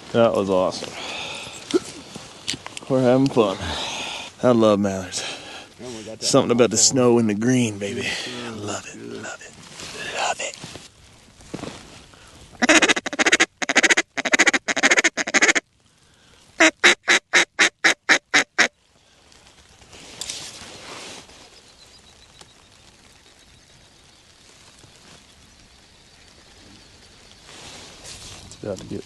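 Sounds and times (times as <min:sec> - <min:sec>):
duck call quacking: 0:12.6 - 0:15.6, 0:16.6 - 0:18.7.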